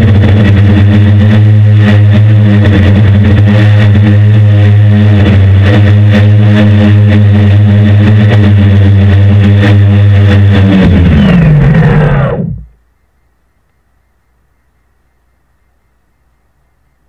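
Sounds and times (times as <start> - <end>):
drone motors humming: 0.0 - 12.8.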